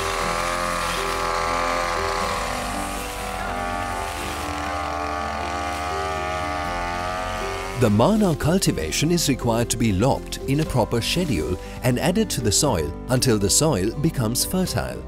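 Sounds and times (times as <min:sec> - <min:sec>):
brush cutter engine whine: 0:00.0 - 0:09.2.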